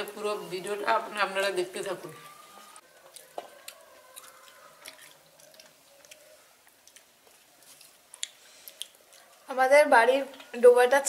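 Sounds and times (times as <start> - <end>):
small eating clicks: 3.0 - 9.4
wet eating squishes: 3.0 - 9.4.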